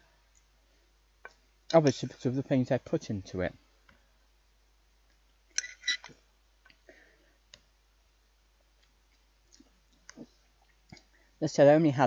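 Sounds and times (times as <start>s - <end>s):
cutlery clinking on plate: 5.6s - 6.2s
faint clicks: 8.8s - 11.2s.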